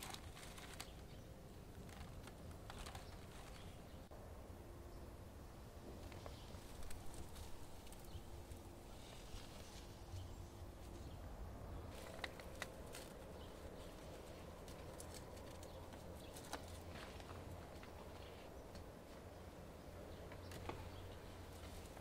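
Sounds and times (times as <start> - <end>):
dry leaves rustling and crackling: 0.0 - 3.9, 6.0 - 11.2, 11.8 - 18.5.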